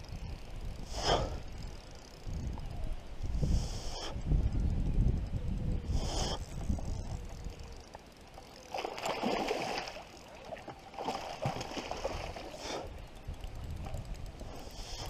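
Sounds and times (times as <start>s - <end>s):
fish thrashing and splashing: 8.6s - 12.6s.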